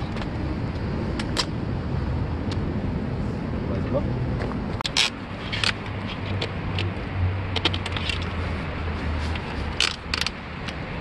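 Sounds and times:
bike rack fittings clicking and rattling: 0.0s - 1.6s, 4.8s - 11.0s.

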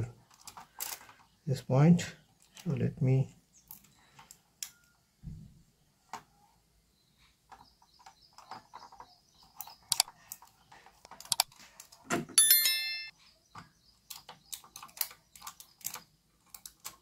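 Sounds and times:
hands handling wire and tape: 0.3s - 1.2s, 7.5s - 12.2s.

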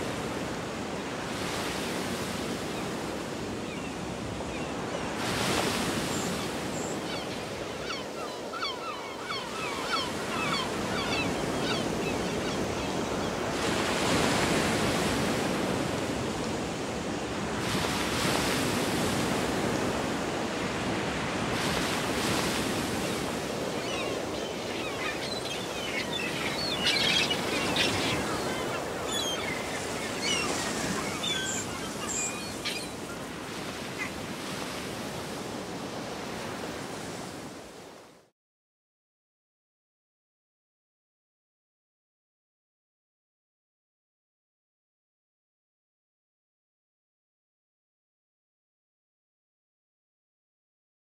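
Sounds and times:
sea surf: 0.0s - 38.1s
wind: 0.0s - 38.3s
faint seabird calls: 3.6s - 15.0s, 21.7s - 36.6s.

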